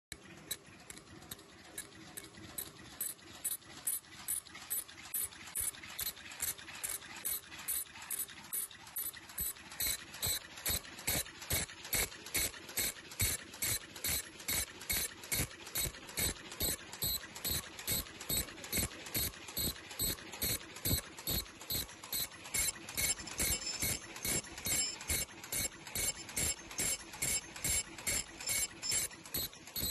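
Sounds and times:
machine clacking rhythmically: 0.1s - 29.9s.

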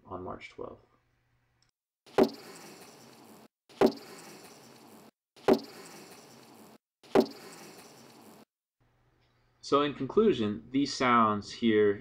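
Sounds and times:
bee colony hissing: 2.1s - 8.5s.

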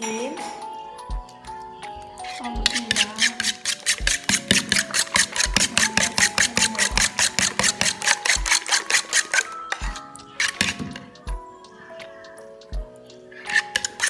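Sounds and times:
background music: 0.0s - 14.0s
fork beating eggs in bowl: 2.2s - 11.2s, 13.4s - 14.0s.

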